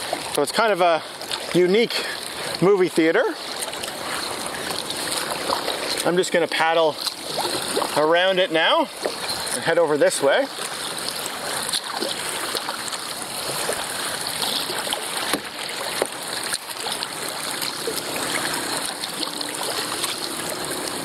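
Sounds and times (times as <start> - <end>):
paddle strokes splashing: 0.0 - 21.0
water washing along hull: 0.0 - 21.0.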